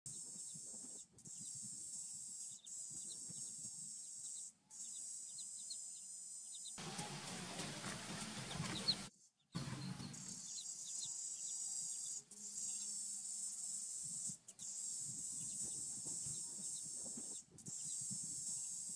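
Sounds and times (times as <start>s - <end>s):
ducklings peeping: 2.5s - 5.8s, 6.6s - 18.9s
rustling scraping noise: 6.8s - 10.4s
insect drone: 9.6s - 18.9s.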